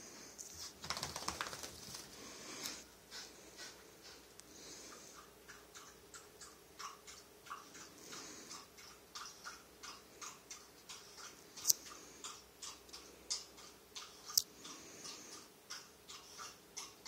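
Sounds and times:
faint regular ticking: 4.2 - 17.0.

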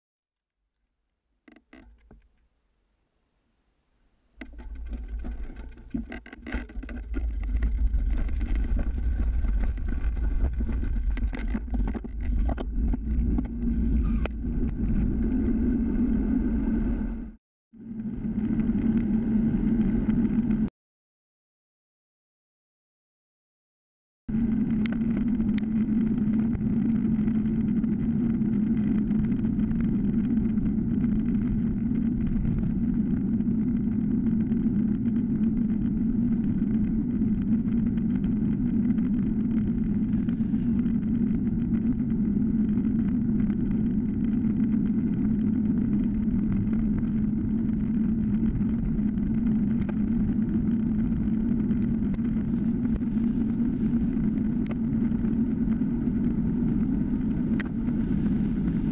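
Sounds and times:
low steady hum: 0.8 - 20.7
bike tyres rolling on asphalt: 4.3 - 20.7, 24.3 - 58.9
wind on microphone: 4.4 - 20.7, 24.3 - 58.9.

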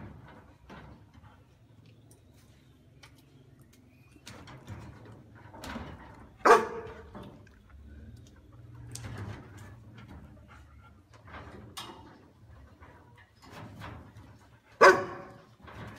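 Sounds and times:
dog barking: 6.4 - 7.0, 14.8 - 15.4.

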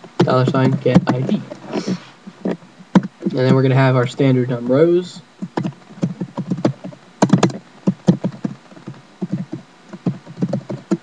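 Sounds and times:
typing on computer keyboard: 5.4 - 8.6, 9.2 - 11.0.

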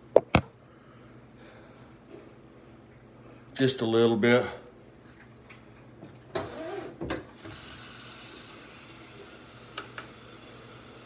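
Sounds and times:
water running into sink: 7.4 - 11.0.

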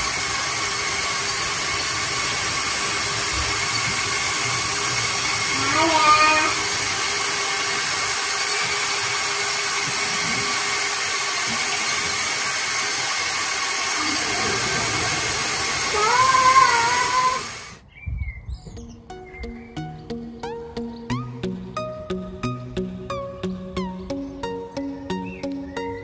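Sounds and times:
electric motors whirring: 0.0 - 17.8
child squealing with laughter: 5.5 - 6.7, 15.9 - 17.6
music: 18.8 - 26.0.

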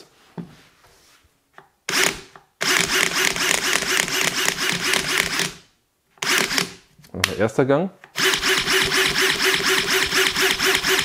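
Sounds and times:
cordless drill pulsing whir: 1.9 - 5.6, 6.2 - 6.8, 8.1 - 11.0.

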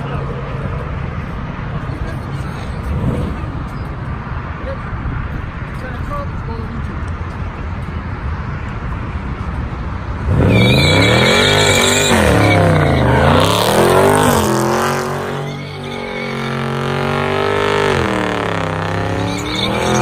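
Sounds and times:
car engine revving: 10.2 - 20.0.

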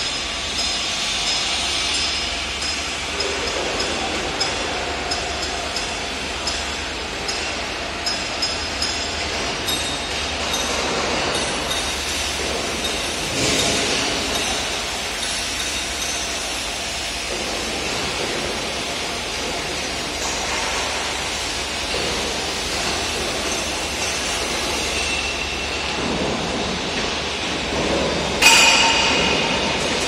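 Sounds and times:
factory machinery noise: 0.0 - 30.0
metallic clank ringing: 28.4 - 30.0.

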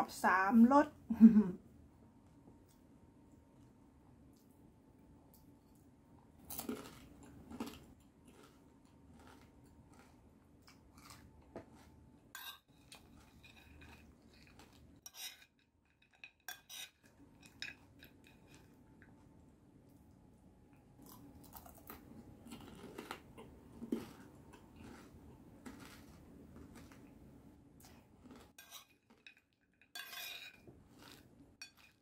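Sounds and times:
metal spoon scraping a plate: 12.4 - 14.1, 15.0 - 18.7, 28.5 - 32.0.

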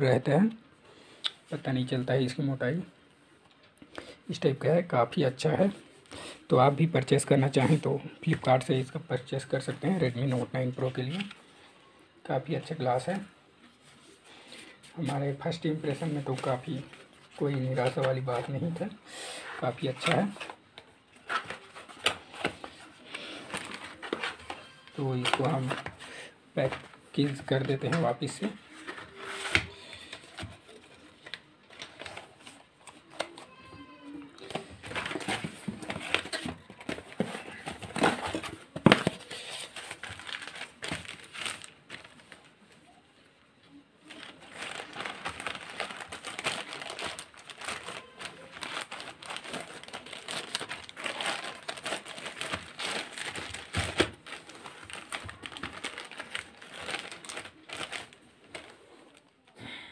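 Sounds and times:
plastic mailer bag crinkling: 34.4 - 42.5, 44.1 - 58.7.

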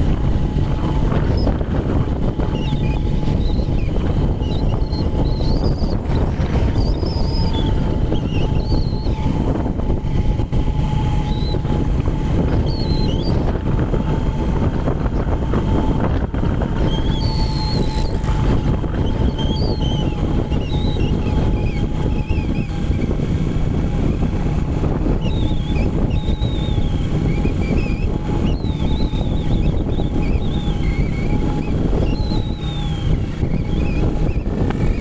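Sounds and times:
steady whine: 0.0 - 35.0
wind buffeting microphone: 0.0 - 35.0
high wavering chirps: 2.4 - 9.5, 10.9 - 11.8, 12.5 - 13.5, 16.8 - 23.3, 25.1 - 35.0.

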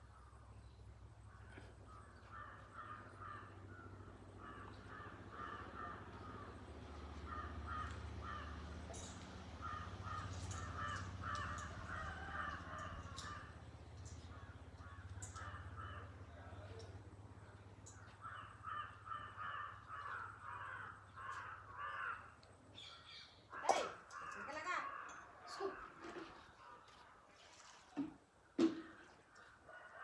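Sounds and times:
crows cawing: 1.3 - 22.5, 23.5 - 26.3.

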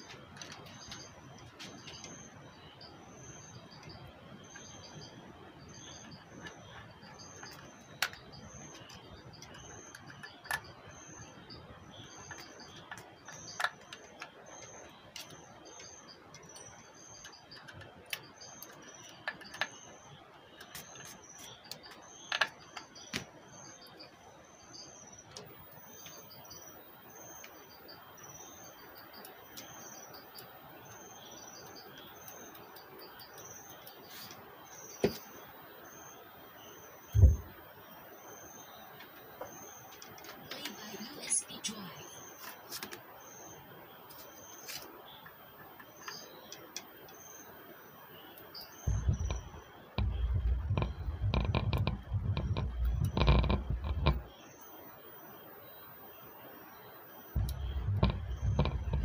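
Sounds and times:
steady high chirping: 0.0 - 42.4, 43.1 - 59.0
clicks and taps on plastic casing: 48.9 - 54.3.

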